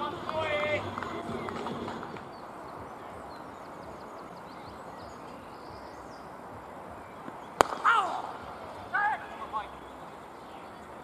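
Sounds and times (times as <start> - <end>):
bird chirps: 1.9 - 11.0
cricket bat striking ball: 7.6 - 8.5
person shouting: 7.8 - 8.2.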